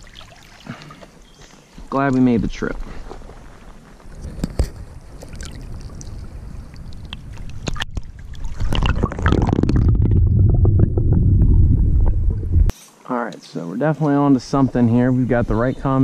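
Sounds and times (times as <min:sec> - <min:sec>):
stream water splashing: 0:00.0 - 0:01.2
underwater rumble and gurgle: 0:04.2 - 0:12.7.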